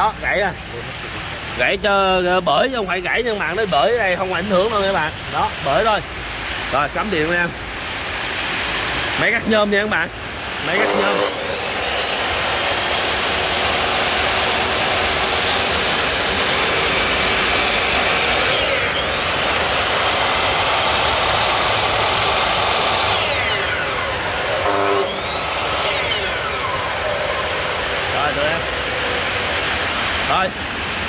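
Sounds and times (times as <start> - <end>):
electric saw motor whirring: 9.7 - 31.0.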